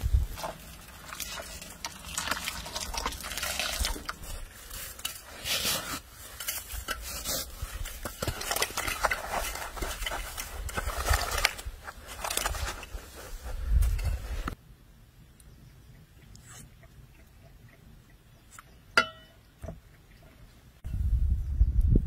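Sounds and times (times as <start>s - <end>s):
snow crunching in enamel bowl: 0.0s - 14.5s
water pouring from a kettle: 0.3s - 4.5s.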